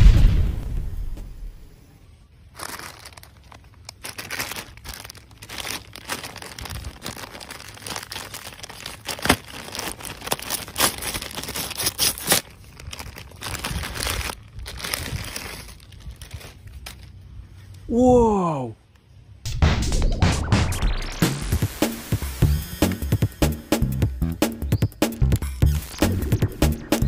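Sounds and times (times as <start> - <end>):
plastic bag crinkling: 2.4 - 17.3.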